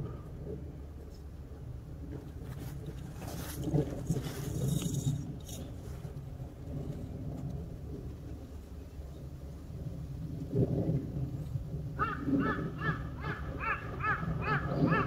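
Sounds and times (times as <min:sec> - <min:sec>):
wind on microphone: 0:00.0 - 0:15.0.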